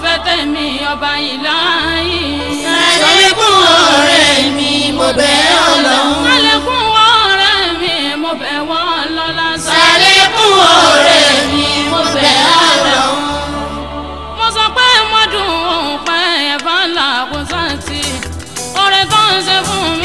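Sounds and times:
low bass notes: 0.0 - 8.1, 9.5 - 16.0
woman singing devotional song: 0.0 - 10.6, 12.9 - 20.0.

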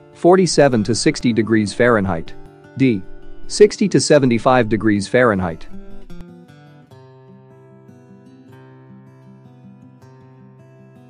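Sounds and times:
soft background music: 0.0 - 6.5.

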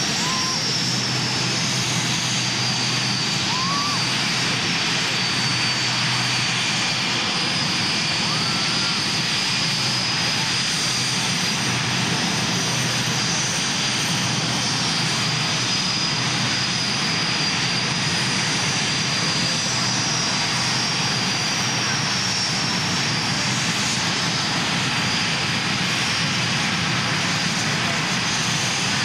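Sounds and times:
jet engines whining: 0.0 - 29.0.

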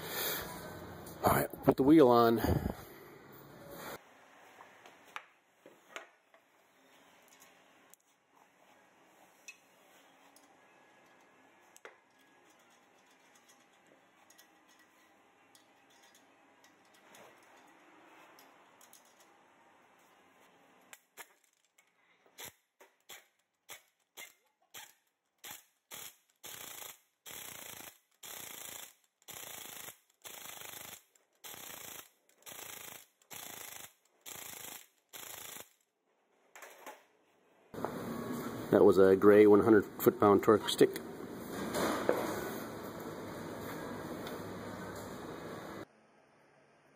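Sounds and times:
impact wrench bursts: 22.4 - 35.8.

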